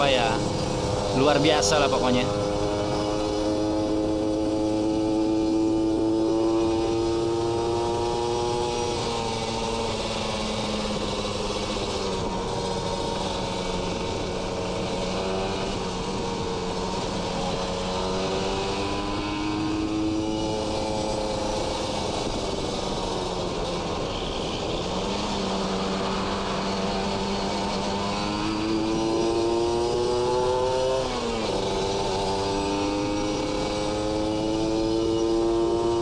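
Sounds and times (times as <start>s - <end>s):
two-stroke motorcycle engine: 0.0s - 36.0s.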